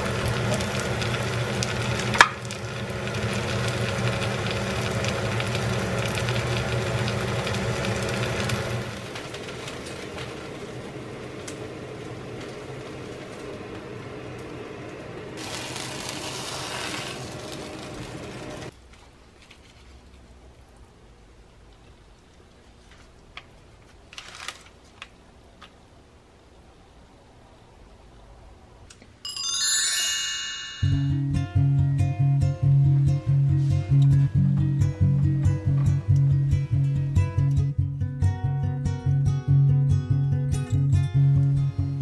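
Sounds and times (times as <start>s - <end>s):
pancake sizzling in oil: 0.0s - 11.6s, 15.4s - 18.7s.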